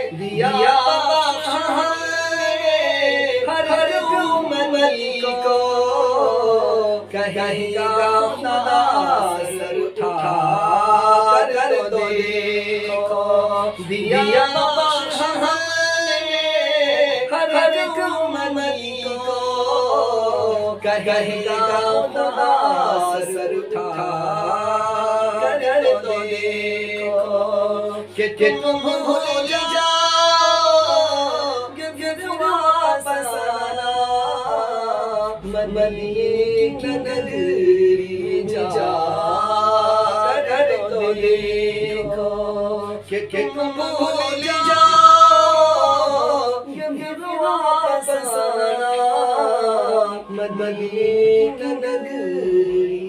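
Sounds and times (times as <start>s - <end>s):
man singing devotional chant: 0.0s - 53.0s.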